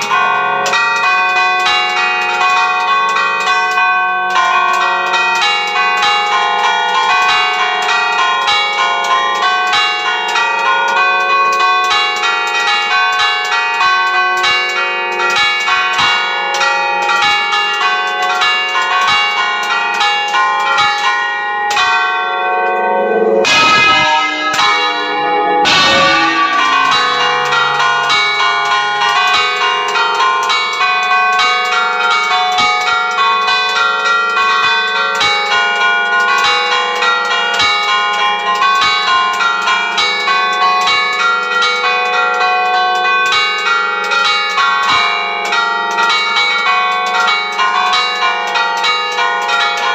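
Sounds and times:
church bells ringing: 0:00.0 - 0:49.9
deep heavy bell strokes: 0:21.8 - 0:33.7.

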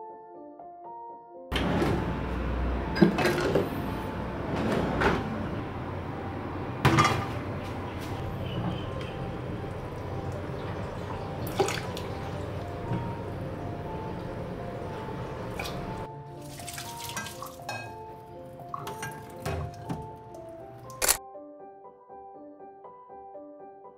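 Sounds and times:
water dripping and pouring: 0:08.2 - 0:18.0, 0:18.6 - 0:21.0.

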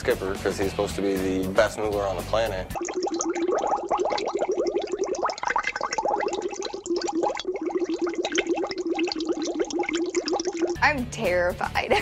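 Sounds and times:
water bubbling fast: 0:02.7 - 0:11.3.

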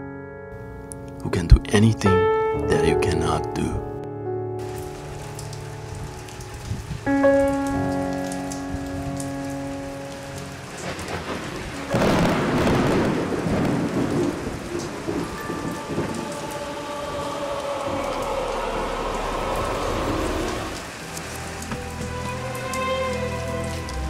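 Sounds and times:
thunder rumbling: 0:04.6 - 0:23.1
rain falling: 0:04.6 - 0:24.0.

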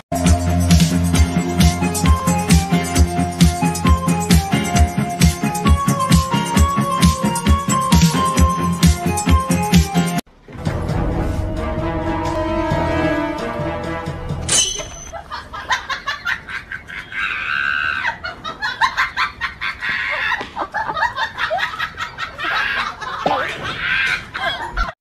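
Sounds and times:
background music: 0:00.0 - 0:15.1
person laughing and shrieking: 0:16.3 - 0:25.0.

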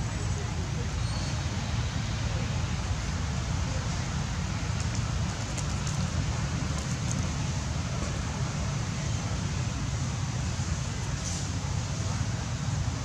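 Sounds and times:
hiss: 0:11.1 - 0:12.1.

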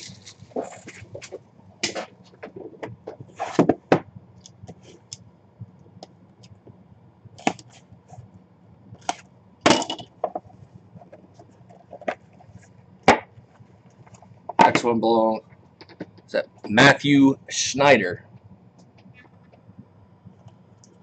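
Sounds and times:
cardboard boxes being handled: 0:00.0 - 0:04.0.

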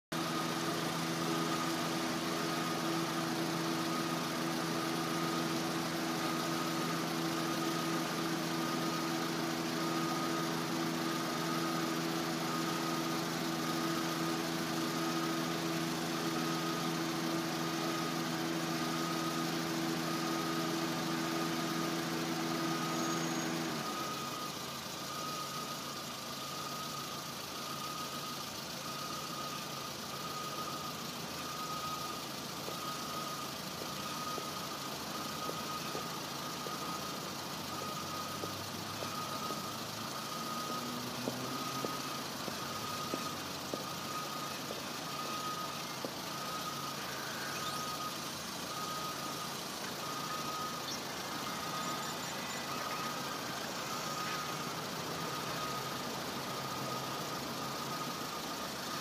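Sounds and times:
pulsing high tone: 0:00.2 - 0:59.0.

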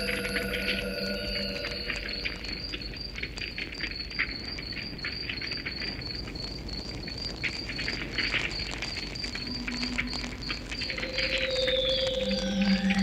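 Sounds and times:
low held tone: 0:00.0 - 0:03.4, 0:09.5 - 0:13.0
cricket chirping: 0:00.0 - 0:13.0
wood fire crackling: 0:00.0 - 0:13.0.

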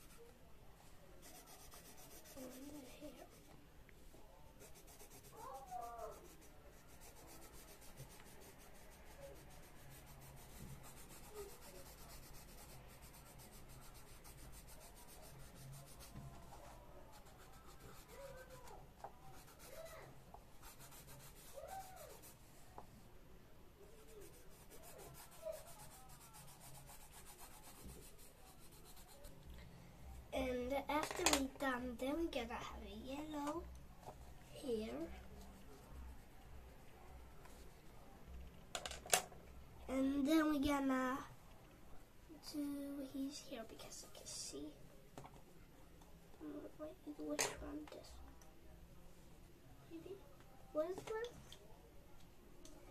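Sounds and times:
pencil scratching on paper: 0:00.0 - 0:00.3, 0:01.2 - 0:03.6, 0:04.6 - 0:22.7, 0:24.0 - 0:29.4.

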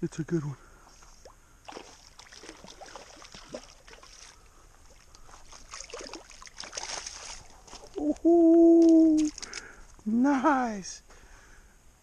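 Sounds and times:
fish splashing in water: 0:01.7 - 0:08.0.

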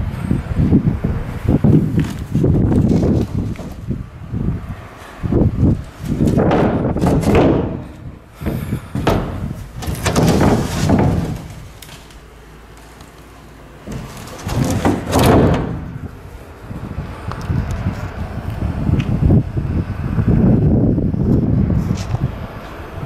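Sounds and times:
hatch lid knocking: 0:06.2 - 0:11.8.

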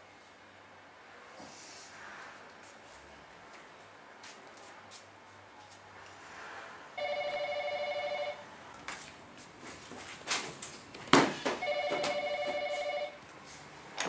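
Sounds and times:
phone ringing electronic warble: 0:07.0 - 0:08.4, 0:11.6 - 0:13.2
cushions thumping: 0:11.1 - 0:12.2.

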